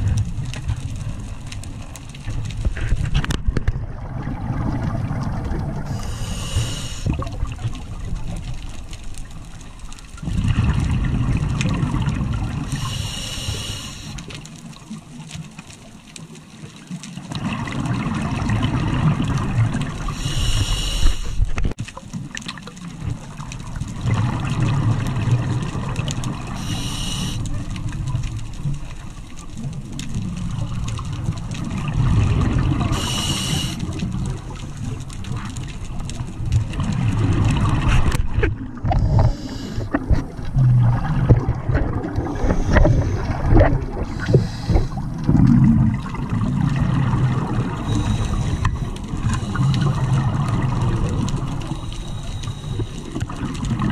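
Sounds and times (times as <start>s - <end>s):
exhaled air bubbling: 0.0s - 15.3s, 17.1s - 53.9s
high hiss of inhaling: 5.9s - 7.2s, 12.7s - 14.3s, 20.0s - 21.5s, 26.6s - 27.5s, 32.9s - 34.0s, 39.1s - 40.0s, 44.1s - 45.1s, 47.9s - 50.0s.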